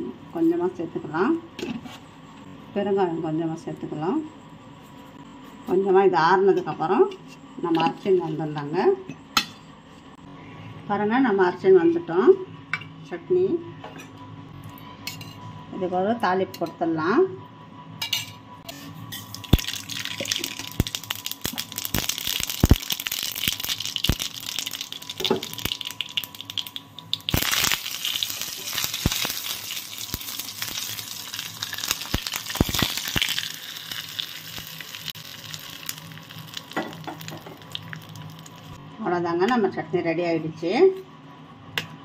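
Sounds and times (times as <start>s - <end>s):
leaves sizzling in oil: 19.2s - 38.8s
seeds crackling in hot oil: 19.2s - 38.8s.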